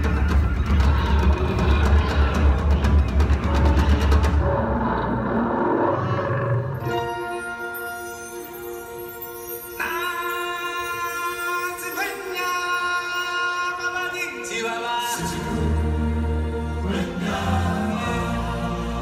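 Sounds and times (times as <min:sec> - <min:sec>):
voices singing held notes: 0:09.7 - 0:19.0.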